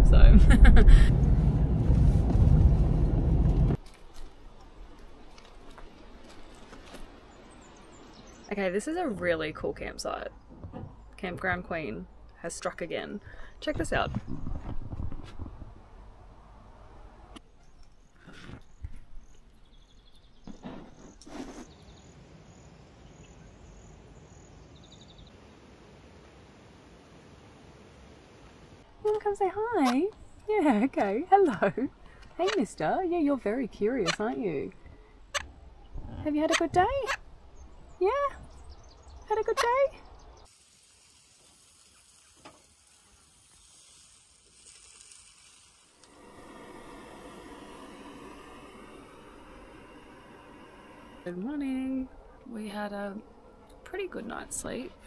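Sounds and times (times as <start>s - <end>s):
faint steady hiss: 40.4s - 53.2s.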